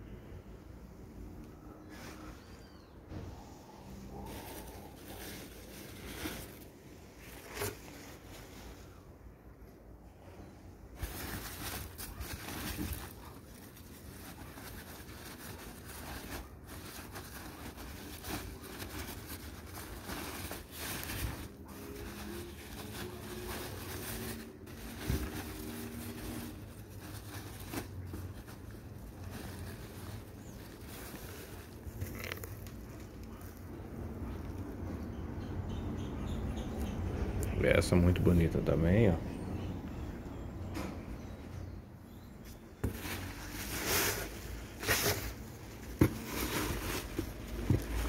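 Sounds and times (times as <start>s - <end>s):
packing paper rustling and crinkling: 1.8s - 9.0s, 10.9s - 35.0s, 42.1s - 48.0s.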